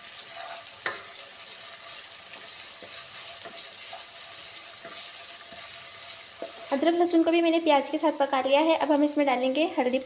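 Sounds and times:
onions sizzling in hot oil: 0.0s - 10.0s
wooden spatula scraping pan: 0.2s - 1.2s, 2.3s - 6.8s.

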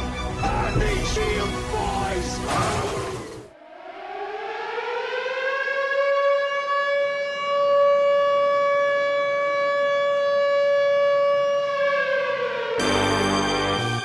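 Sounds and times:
siren steady tone: 3.5s - 14.0s.

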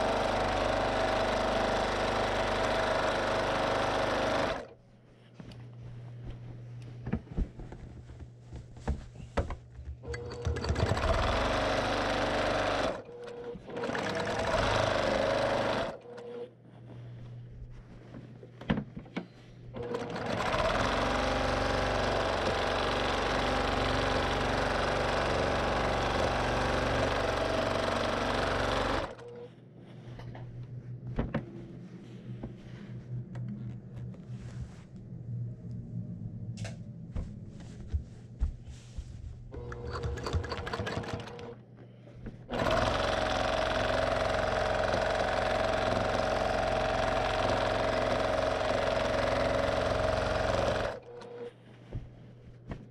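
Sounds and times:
sewing machine stitching fast: 0.0s - 4.8s, 10.0s - 16.5s, 19.8s - 29.5s, 39.5s - 41.6s, 42.5s - 51.5s.

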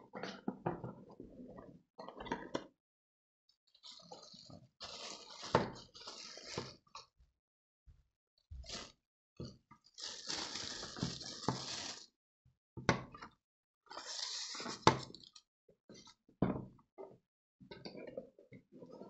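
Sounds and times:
plastic wrapping crinkling: 3.9s - 6.6s, 8.6s - 8.9s, 10.0s - 12.1s.

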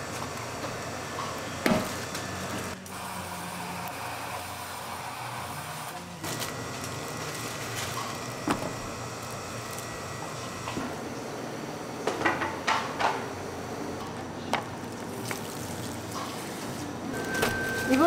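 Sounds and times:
sealing machine motor humming: 0.0s - 11.0s, 14.9s - 18.0s.

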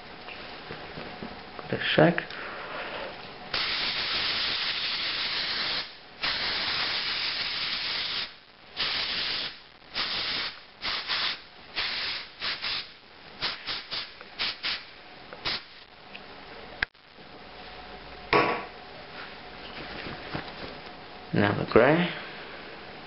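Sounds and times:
aerosol spray hissing: 3.6s - 14.8s.

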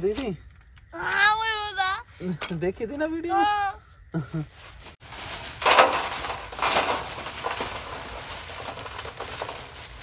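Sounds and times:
plastic bag rustling: 4.8s - 10.0s
charcoal clattering into metal tray: 5.4s - 10.0s.

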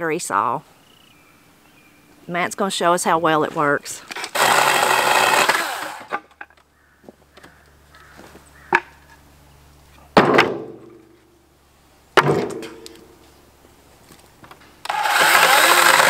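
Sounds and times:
chainsaw running down: 4.1s - 6.2s, 14.8s - 16.0s.

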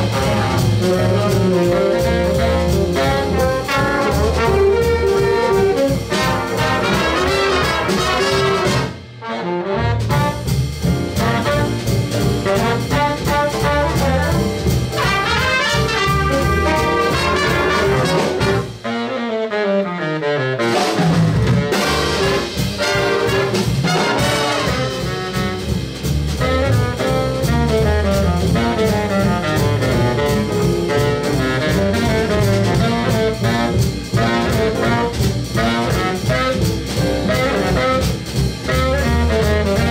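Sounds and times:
jazz big band playing: 0.0s - 39.9s.

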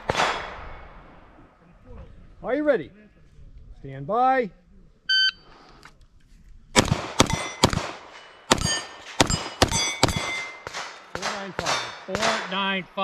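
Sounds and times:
shot timer beep: 5.1s - 5.5s
rapid gunshots: 6.8s - 12.6s
steel target plate ringing: 7.2s - 10.8s.

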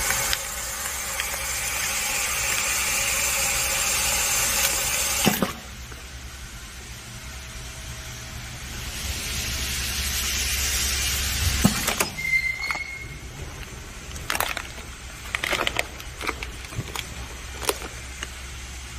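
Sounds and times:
steady low hum: 5.5s - 18.9s
plastic bag crinkling: 11.8s - 18.7s.

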